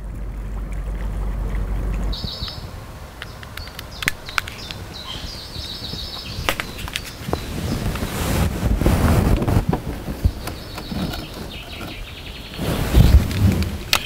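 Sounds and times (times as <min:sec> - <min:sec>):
wind rumble on microphone: 0:00.0 - 0:14.0
small birds chirping: 0:01.4 - 0:08.4, 0:09.9 - 0:14.0
sharp clicks: 0:03.2 - 0:04.8, 0:06.4 - 0:07.4.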